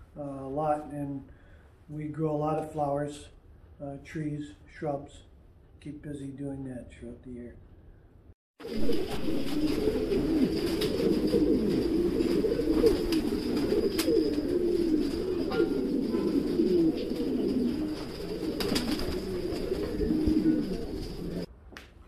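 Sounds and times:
pigeons cooing: 8.6s - 21.5s.

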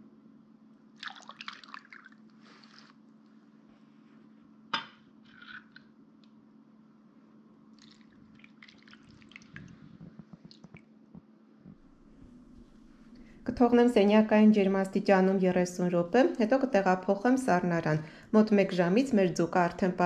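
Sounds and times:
low steady hum: 0.0s - 20.0s
liquid splashing and dripping in pot: 1.0s - 2.2s, 7.8s - 9.6s.

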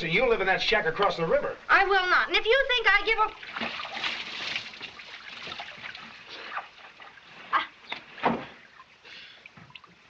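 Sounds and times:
water sloshing and splashing: 3.2s - 10.0s.

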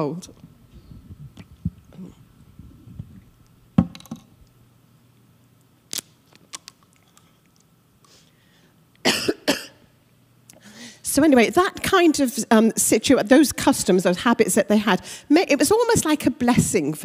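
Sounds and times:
mouth clicks and smacks: 1.2s - 2.0s, 5.9s - 7.7s
woman coughing: 9.0s - 9.8s.

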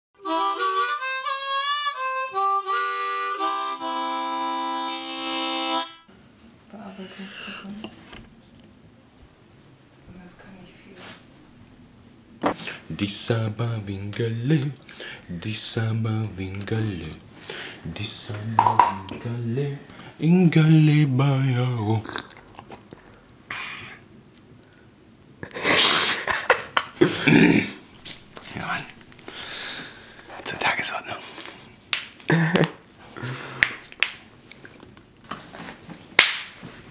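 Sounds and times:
harmonica playing chords: 0.2s - 6.1s
breathy exhale: 17.4s - 17.8s, 29.2s - 30.3s, 33.2s - 33.7s
short vocal sound: 21.2s - 22.6s
person sipping from cup: 22.0s - 23.0s.

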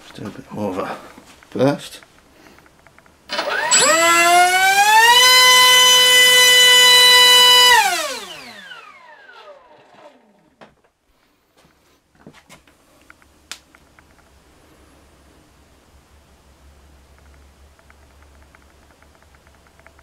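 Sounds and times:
electric motor propeller whine: 3.3s - 10.6s.

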